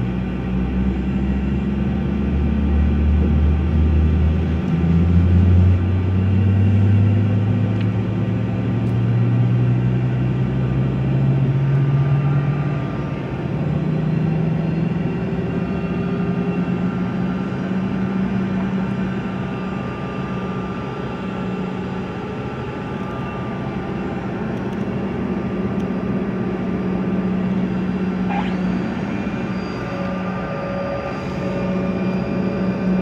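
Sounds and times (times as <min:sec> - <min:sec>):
airliner engines humming in cabin: 0:00.0 - 0:33.0
steady high tone: 0:18.8 - 0:33.0
short rising tone: 0:27.8 - 0:33.0.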